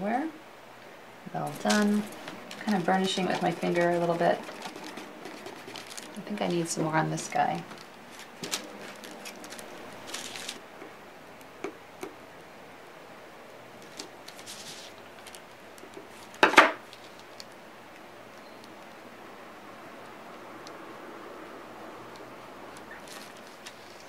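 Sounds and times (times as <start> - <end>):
burnishing tool rubbing: 1.3 - 10.6.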